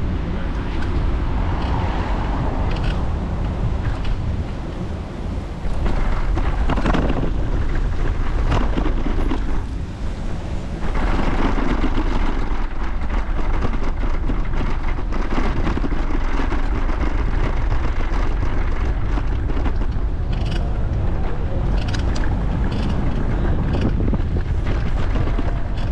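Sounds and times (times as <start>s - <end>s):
street and vehicle noise: 0.0s - 25.9s
wind rushing over microphone: 0.0s - 25.9s.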